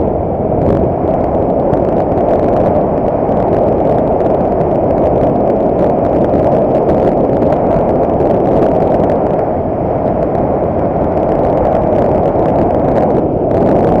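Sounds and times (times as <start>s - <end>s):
motorcycle engine: 0.0s - 14.0s
road noise: 0.0s - 14.0s
wind buffeting microphone: 0.0s - 14.0s.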